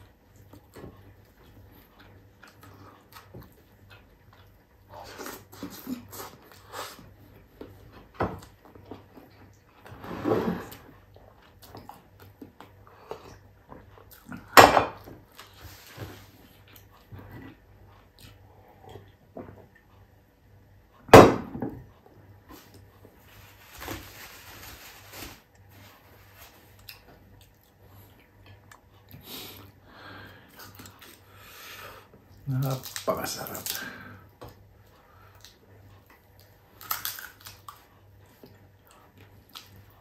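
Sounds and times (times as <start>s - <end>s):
chewing and mouth noises: 0.1s - 9.9s, 11.0s - 14.6s, 26.8s - 29.8s, 30.5s - 31.3s, 34.5s - 40.0s.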